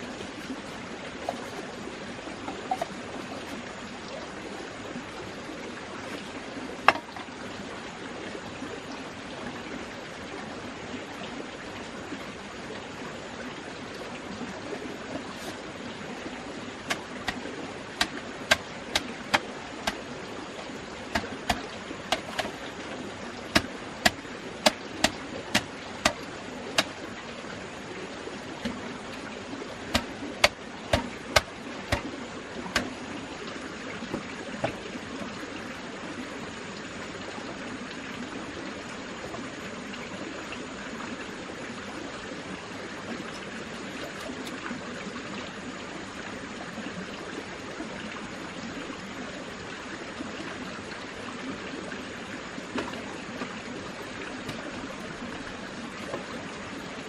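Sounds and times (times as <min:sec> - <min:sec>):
knocks on bamboo: 0:06.8 - 0:07.3, 0:18.0 - 0:20.0, 0:21.1 - 0:22.6, 0:23.5 - 0:26.9, 0:29.9 - 0:32.1, 0:32.7 - 0:32.9.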